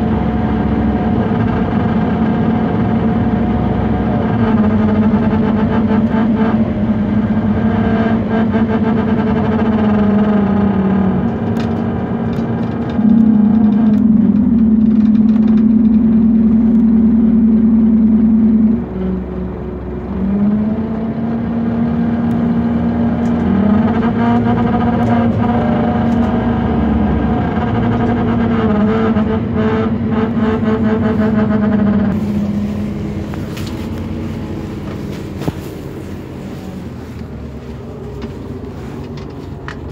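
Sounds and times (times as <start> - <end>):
bus engine droning whine: 0.0 - 39.9
rattles: 11.3 - 17.7.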